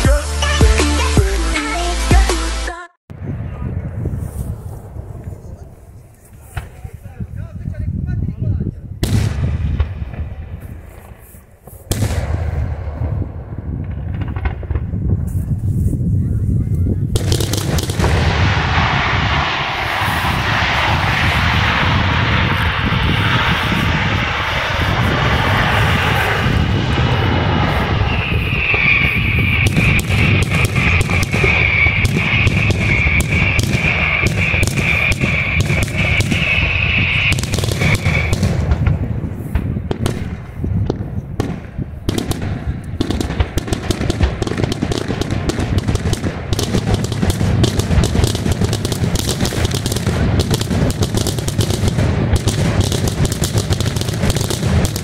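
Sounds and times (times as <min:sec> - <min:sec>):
fireworks bangs and crackling: 0:03.1 - 0:55.0
high steady whistle: 0:18.6 - 0:38.4.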